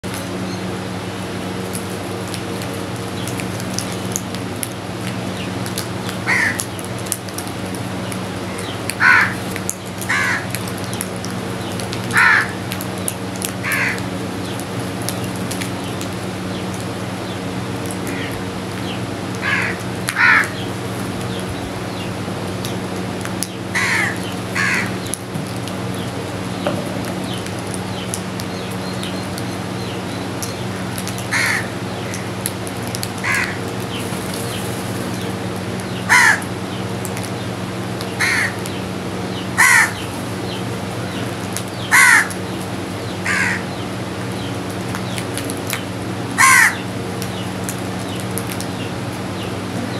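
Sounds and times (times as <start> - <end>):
steady low hum: 0.0 - 49.9
crows cawing: 6.2 - 6.7, 9.0 - 10.6, 12.1 - 12.6, 13.6 - 14.0, 18.0 - 18.4, 19.4 - 20.6, 23.7 - 25.0, 31.3 - 32.3, 33.2 - 33.7, 36.1 - 36.5, 38.2 - 38.7, 39.6 - 40.0, 41.9 - 42.4, 43.2 - 43.7, 46.4 - 46.9.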